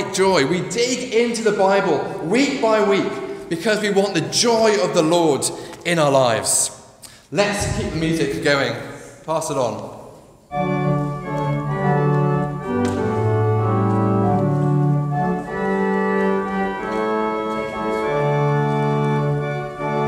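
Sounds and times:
organ playing slow chords: 0:10.4 - 0:20.0.

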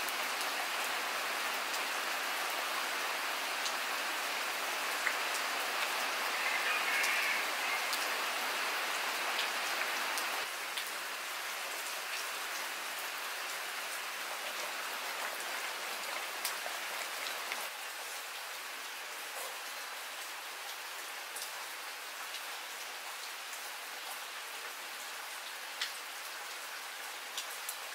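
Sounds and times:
steady rain falling: 0:00.0 - 0:27.9.

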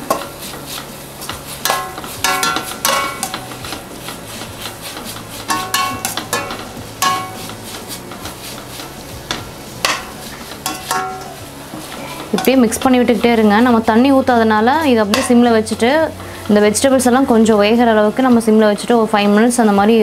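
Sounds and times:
metal spatula scraping a pan: 0:00.0 - 0:17.2
vegetables sizzling: 0:00.0 - 0:20.0
spatula clinking against pan: 0:01.6 - 0:03.5, 0:05.5 - 0:07.6, 0:09.8 - 0:11.4.

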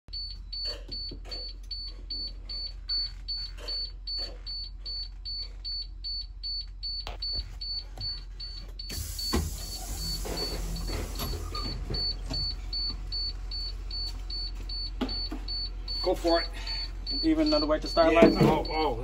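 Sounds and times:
rapid high warning beeps: 0:00.1 - 0:19.0
hiss: 0:08.9 - 0:11.6
knocks and thump: 0:09.2 - 0:13.0, 0:15.0 - 0:15.6, 0:18.2 - 0:18.7.

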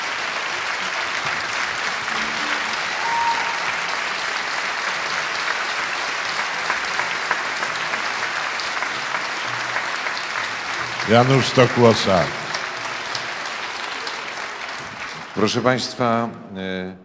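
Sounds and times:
audience applauding: 0:00.0 - 0:16.2.

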